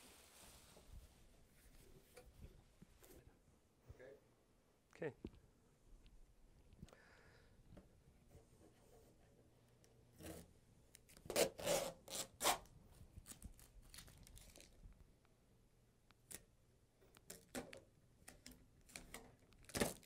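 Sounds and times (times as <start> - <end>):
masking tape being peeled: 11.1 - 14.8
plastic cover rustling: 13.2 - 14.8, 18.9 - 20.0.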